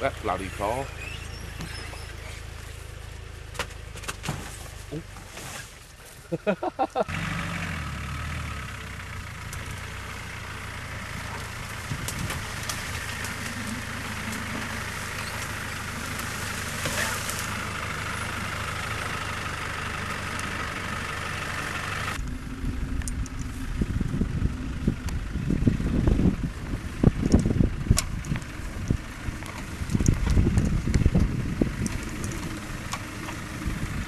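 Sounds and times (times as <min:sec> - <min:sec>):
diesel engine running at low revs: 0:00.0 - 0:34.0
wind buffeting microphone: 0:11.6 - 0:14.1, 0:22.2 - 0:34.0.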